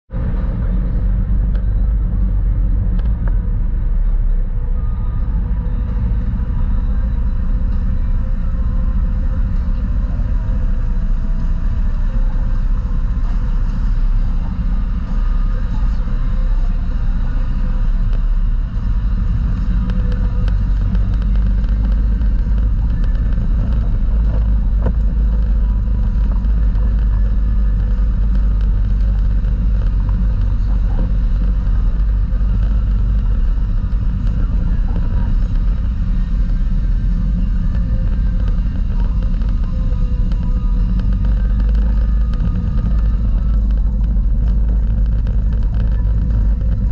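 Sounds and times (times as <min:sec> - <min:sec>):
off-road vehicle engine rumbling: 0:00.0 - 0:46.9.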